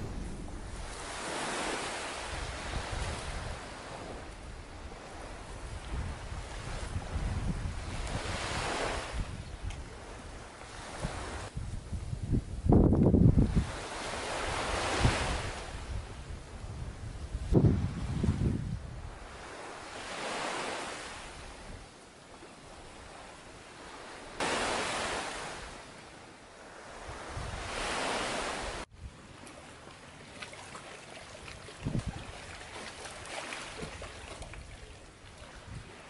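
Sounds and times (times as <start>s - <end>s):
low thump: 0.0s - 2.6s
sea surf washing ashore: 0.0s - 11.6s, 12.7s - 36.0s.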